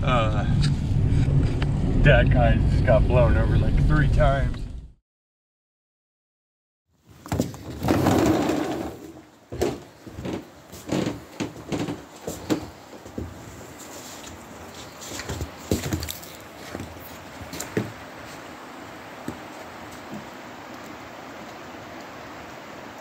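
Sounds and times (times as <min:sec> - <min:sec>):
footsteps crunching in snow: 0:09.8 - 0:18.5.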